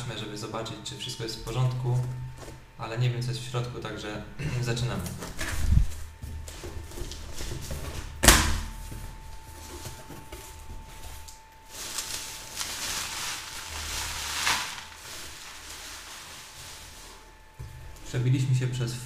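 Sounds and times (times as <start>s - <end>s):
bubble wrap crinkling: 9.4s - 17.9s.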